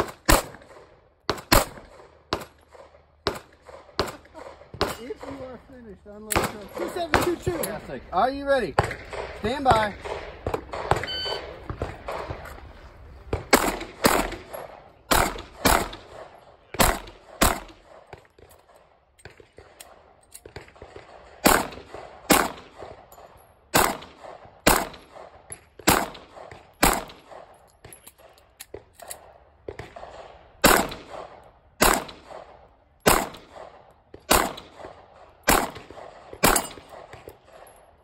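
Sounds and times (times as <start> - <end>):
pistol shots: 0.0 - 5.6, 6.2 - 7.9, 8.7 - 12.6, 13.2 - 28.0, 28.7 - 37.8
electronic timer beep: 11.0 - 11.4.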